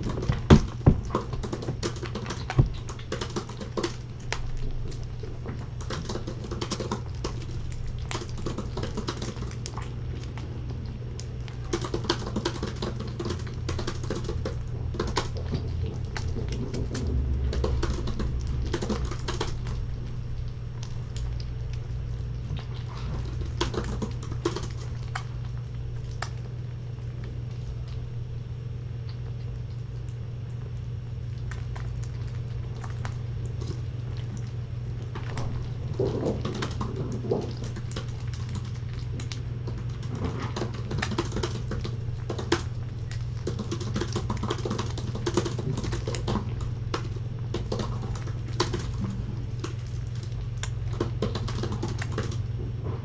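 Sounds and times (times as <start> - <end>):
kittens eating wet food: 0.0 - 53.0
low hum: 0.0 - 53.0.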